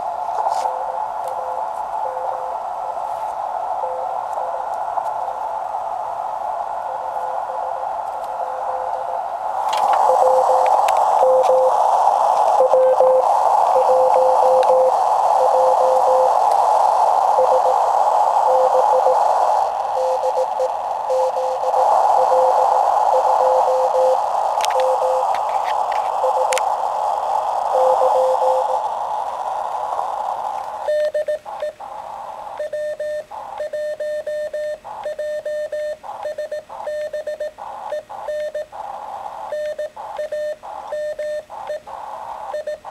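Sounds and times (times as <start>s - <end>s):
shortwave receiver hiss: 0.0s - 42.9s
faint morse code signal: 0.4s - 2.7s, 3.8s - 4.8s, 6.8s - 9.2s, 9.9s - 26.6s, 27.6s - 29.0s, 30.8s - 31.9s, 32.5s - 42.9s
clean morse sidetone: 0.4s - 4.8s, 6.8s - 9.2s, 9.9s - 16.6s, 17.2s - 25.4s, 26.1s - 26.6s, 27.6s - 29.0s, 30.8s - 31.8s, 39.5s - 41.8s.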